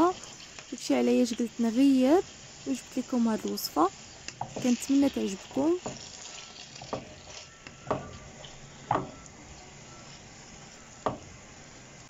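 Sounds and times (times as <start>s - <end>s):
chicken sizzling in a pan: 0.0s - 12.0s
spatula scraping a pan: 3.9s - 9.2s.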